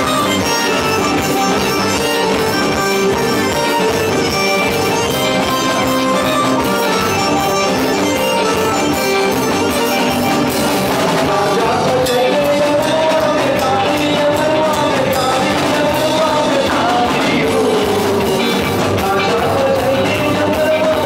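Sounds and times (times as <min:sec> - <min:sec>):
band with electric guitar and drums: 0:00.0 - 0:21.0
man singing: 0:10.4 - 0:21.0.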